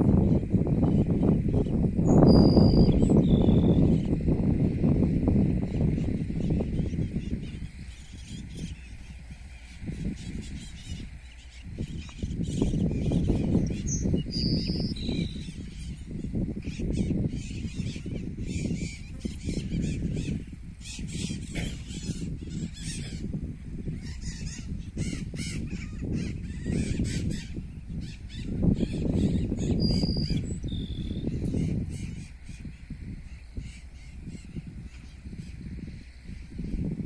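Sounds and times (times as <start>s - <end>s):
wind rumble on microphone: 0.0s - 37.0s
clear whistled bird notes: 2.0s - 4.0s, 7.0s - 15.9s, 28.0s - 31.4s.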